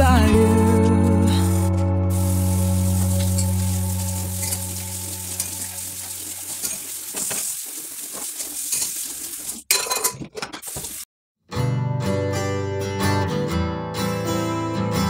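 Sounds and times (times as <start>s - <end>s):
water running from tap: 1.3s - 9.9s, 10.6s - 11.1s
utensils and crockery clinking: 2.9s - 11.0s.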